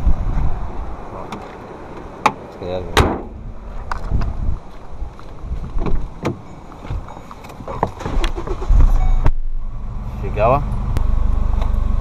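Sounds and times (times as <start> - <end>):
wind rumbling on microphone: 0.0 - 2.2, 3.0 - 10.0.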